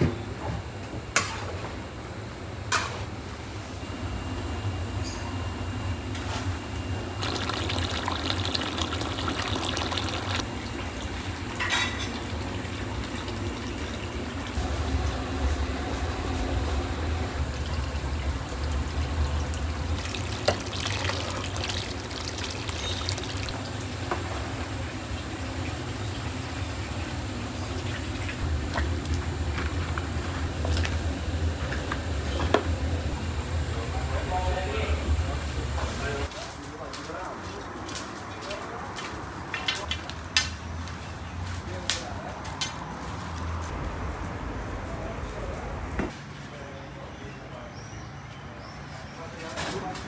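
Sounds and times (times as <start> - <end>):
splashing and metal clatter: 7.2 - 14.6, 17.6 - 24.8
liquid ladled and poured in pots: 7.2 - 32.7.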